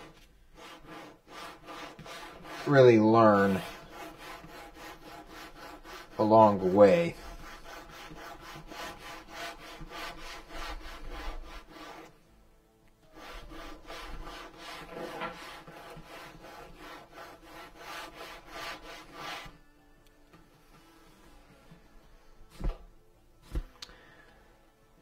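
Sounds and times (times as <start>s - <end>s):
sandpaper scraping leather: 0.0s - 12.1s, 13.1s - 19.6s.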